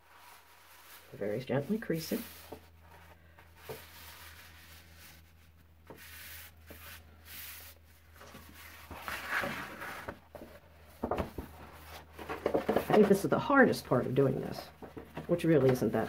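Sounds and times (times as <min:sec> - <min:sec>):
hands rubbing paper: 0:00.0 - 0:10.2
stiff paper rustling: 0:00.0 - 0:13.5.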